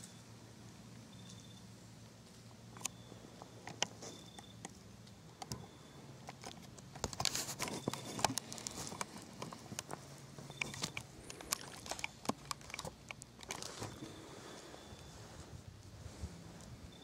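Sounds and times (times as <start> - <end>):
low steady hum: 0.0 - 17.0
clatter and rustle: 6.2 - 16.8.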